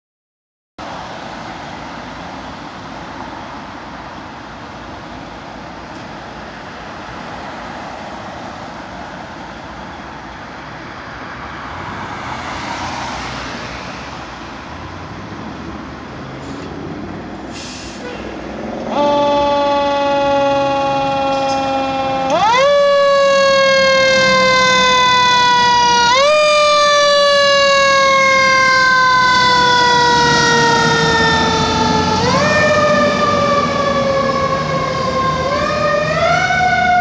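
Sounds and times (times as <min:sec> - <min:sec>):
street traffic noise: 0:00.8 - 0:37.0
vehicle passing: 0:11.2 - 0:17.4, 0:18.0 - 0:37.0
air brake hisses: 0:16.4 - 0:16.7, 0:17.5 - 0:18.3
siren wailing: 0:18.8 - 0:37.0.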